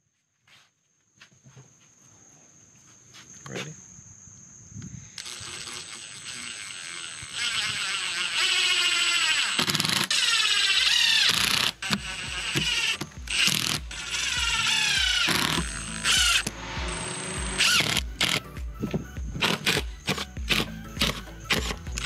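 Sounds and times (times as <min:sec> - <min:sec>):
impact driver driving screws: 0:05.2 - 0:16.5, 0:17.6 - 0:22.0.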